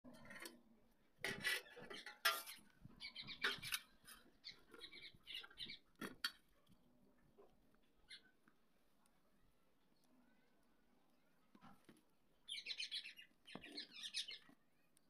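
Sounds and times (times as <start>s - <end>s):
tub knocking and scraping: 1.2s - 6.4s.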